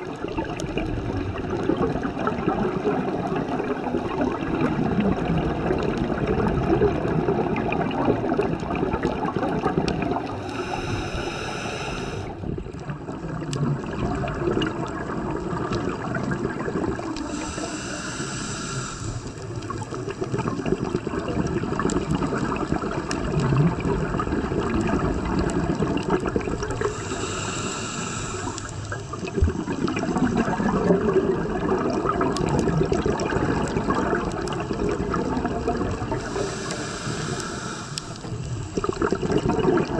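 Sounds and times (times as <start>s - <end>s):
exhalation bubbling: 0.0s - 39.9s
regulator inhalation hiss: 10.3s - 12.4s, 17.2s - 19.4s, 26.7s - 30.0s, 36.1s - 38.9s.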